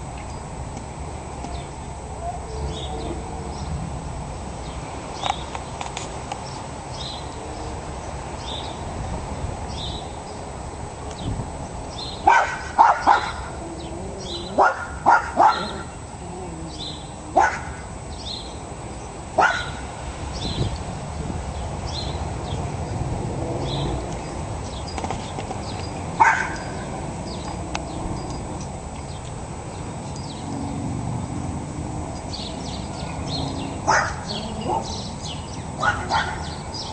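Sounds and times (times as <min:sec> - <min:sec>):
dog barking: 0:12.2 - 0:13.5, 0:14.5 - 0:15.9, 0:17.4 - 0:17.8, 0:19.4 - 0:19.8, 0:26.2 - 0:26.7, 0:33.9 - 0:34.9, 0:35.8 - 0:36.6.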